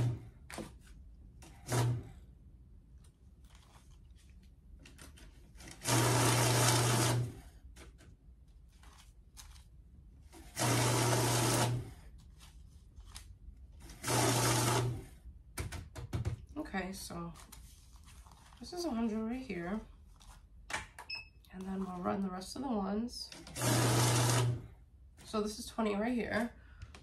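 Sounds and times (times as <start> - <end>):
paper bills rustling: 3.0 - 5.8, 7.8 - 10.0, 12.1 - 13.9, 17.3 - 19.1
banknote counting machine running: 5.7 - 7.3, 10.5 - 11.8, 13.9 - 15.0, 23.5 - 24.6.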